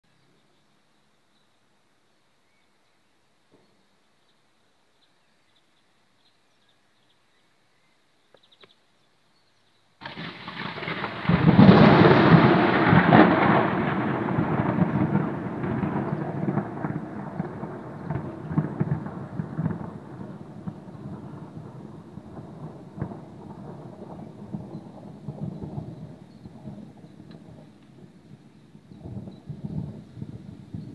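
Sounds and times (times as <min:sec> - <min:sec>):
thunder crack and rumble: 0:10.0 - 0:30.9.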